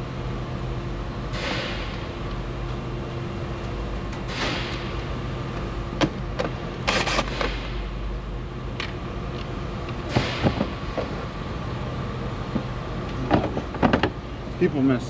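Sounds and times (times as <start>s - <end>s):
steady workshop hum: 0.0s - 15.0s.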